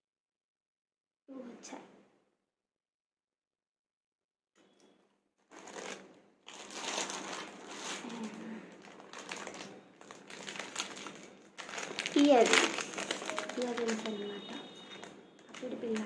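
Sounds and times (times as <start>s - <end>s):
paper and plastic packet crinkling: 5.5s - 16.0s.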